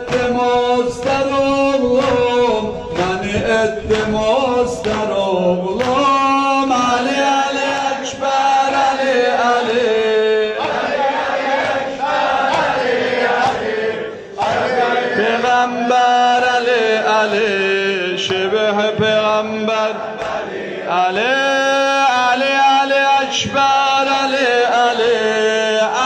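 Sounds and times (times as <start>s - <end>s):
men chanting a lament: 0.0s - 26.0s
sharp beats: 10.6s - 14.9s.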